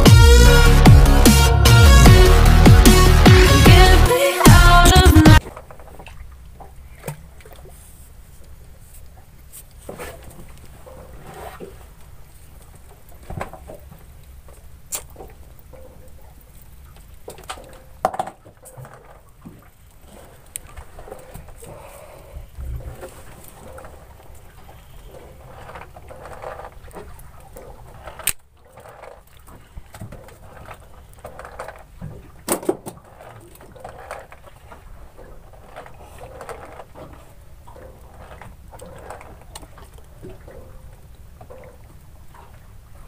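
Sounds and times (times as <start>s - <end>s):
water lapping against boat hull: 5.2s - 43.0s
low steady rumble: 22.1s - 25.7s.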